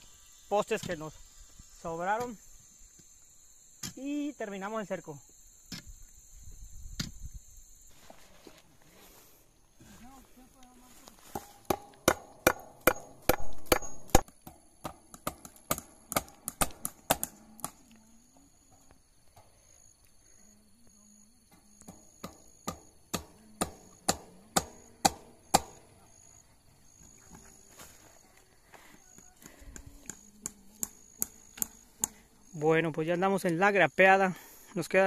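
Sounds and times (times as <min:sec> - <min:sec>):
hammer striking staples into wood: 0:11.7 - 0:17.4.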